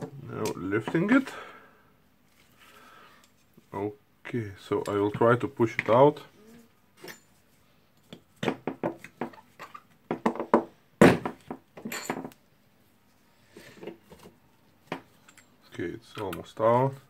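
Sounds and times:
metal parts knocking and clinking: 11.2s - 12.4s.

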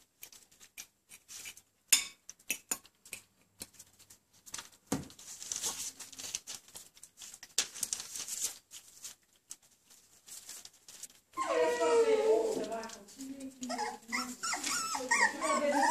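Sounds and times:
puppies eating wet smacks: 0.0s - 4.8s
newspaper crinkling: 3.7s - 15.9s.

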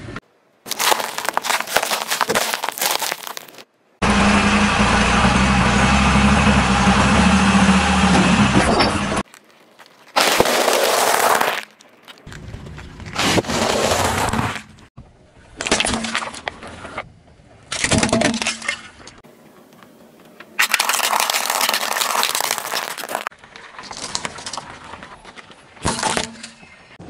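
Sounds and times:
car tyre crushing objects: 0.7s - 3.7s, 4.8s - 14.9s, 20.6s - 26.8s.

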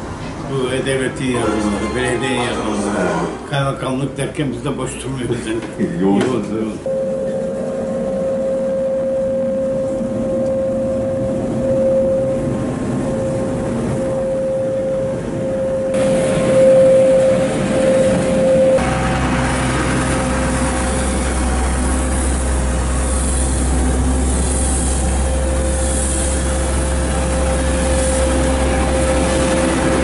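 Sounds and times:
truck engine droning: 0.0s - 5.2s, 6.8s - 30.0s
hose spray hissing on pavement: 21.8s - 27.1s.

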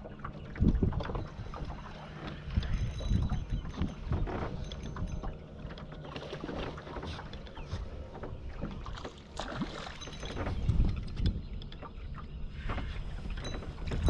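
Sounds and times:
water noise: 0.0s - 14.0s
wind rumble: 0.0s - 14.0s.

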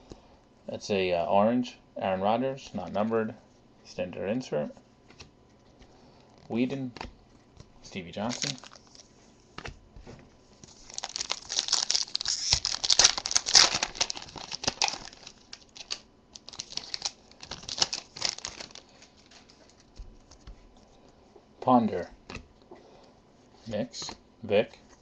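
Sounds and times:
foil wrapper crinkling: 8.1s - 9.1s, 10.6s - 20.6s.

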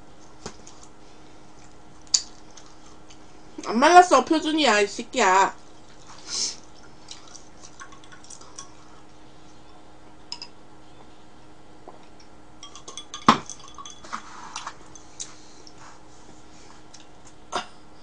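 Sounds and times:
faint steady hum: 0.0s - 18.0s
glass and tableware clinking: 10.3s - 10.6s, 12.6s - 14.3s.

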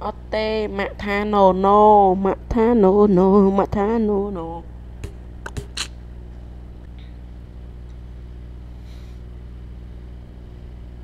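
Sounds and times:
steady low hum: 0.0s - 11.0s
sharp click: 5.0s - 6.0s.

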